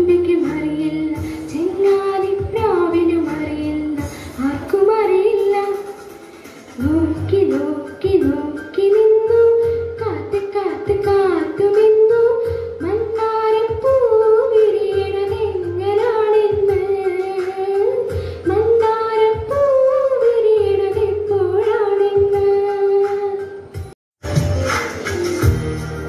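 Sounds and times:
woman singing: 0:00.0 - 0:06.0, 0:06.8 - 0:23.6
instrumental music with low beat: 0:00.0 - 0:26.0.

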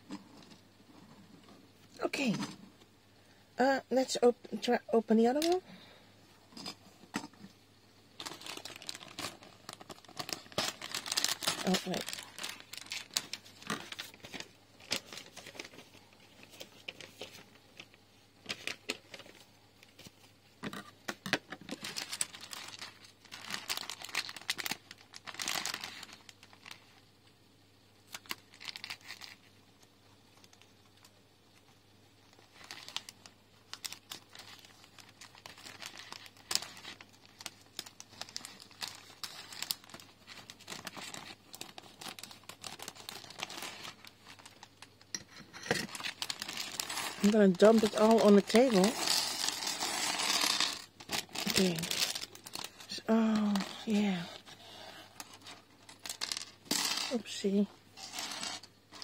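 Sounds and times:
plastic bag crinkling: 0:08.2 - 0:20.0, 0:21.6 - 0:26.9, 0:28.1 - 0:29.4, 0:32.2 - 0:45.2, 0:45.8 - 0:59.0.

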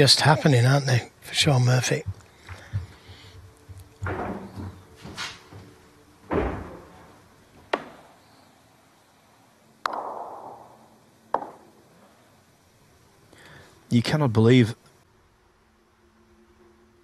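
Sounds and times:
snooker balls clicking: 0:09.8 - 0:11.9.

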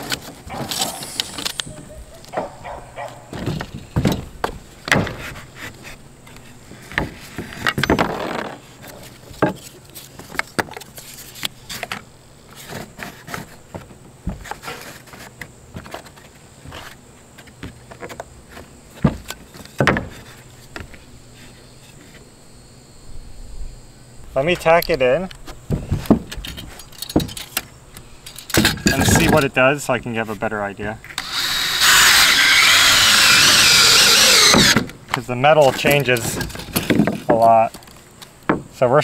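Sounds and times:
wooden strips knocking and clattering: 0:17.5 - 0:20.9, 0:35.7 - 0:37.9.

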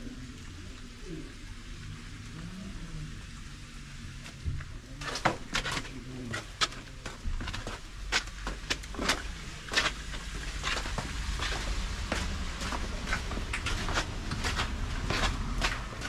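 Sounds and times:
footsteps on wet stone steps: 0:04.2 - 0:16.0.

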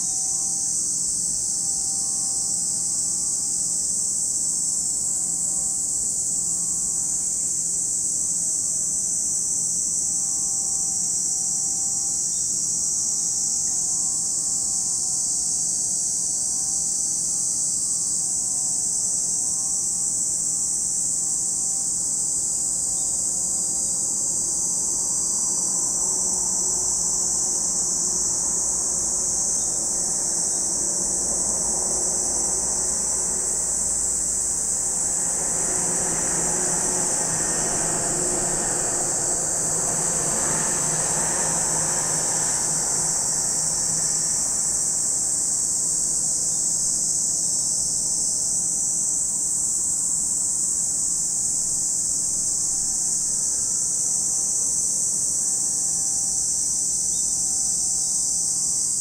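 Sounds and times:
cicadas droning: 0:00.0 - 0:59.0
vehicle passing rumble: 0:23.5 - 0:46.0.

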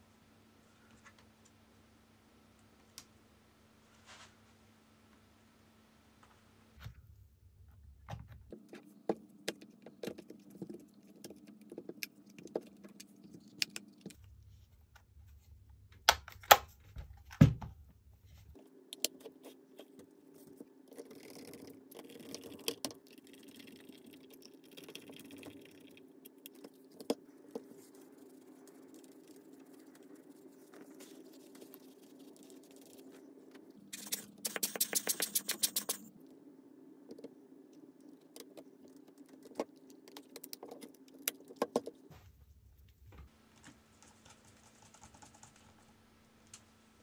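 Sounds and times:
faint low hum: 0:00.0 - 0:47.0
soft rustling: 0:03.9 - 0:04.6.

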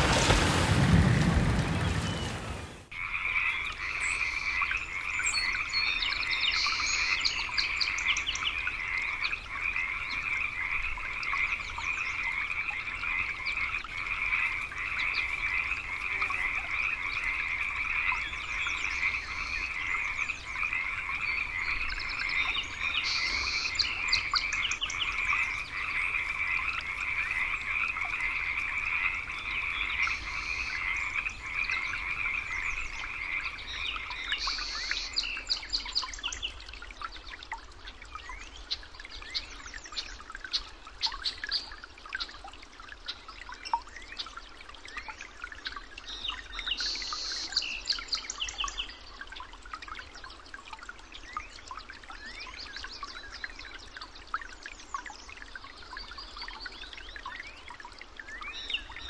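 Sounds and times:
chorus of frogs croaking: 0:02.9 - 0:36.6.

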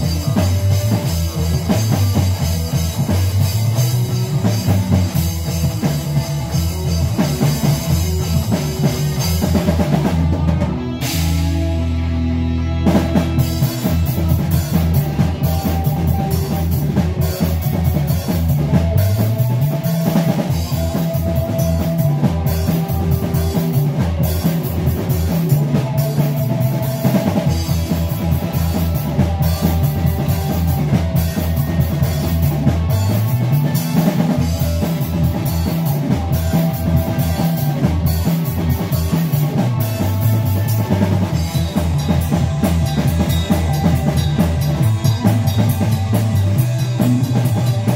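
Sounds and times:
bass guitar line: 0:00.0 - 0:47.9
drum kit beat: 0:00.0 - 0:47.9
electric guitar: 0:00.0 - 0:47.9.

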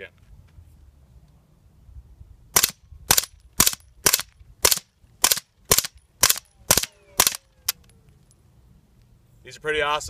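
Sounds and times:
suppressed gunshots: 0:02.6 - 0:07.4.

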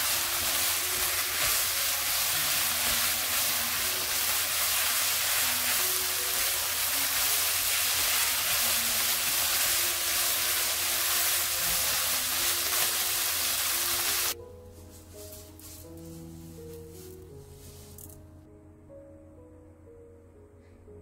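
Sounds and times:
vegetables sizzling in a pan: 0:00.0 - 0:14.4
soft background music: 0:00.0 - 0:21.0.

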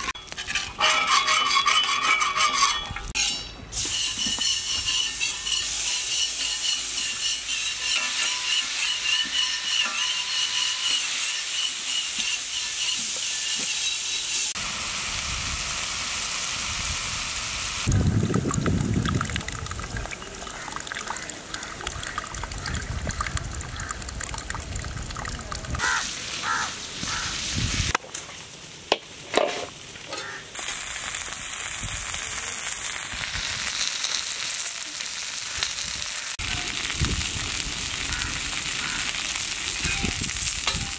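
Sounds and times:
chicken sizzling on griddle: 0:02.2 - 0:17.9, 0:25.8 - 0:27.9, 0:28.5 - 0:40.9
water gushing: 0:10.5 - 0:28.7, 0:30.2 - 0:40.9.

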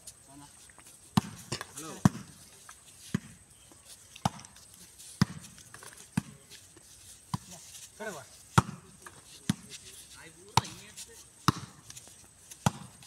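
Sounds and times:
volleyball hand slaps: 0:11.4 - 0:11.8.

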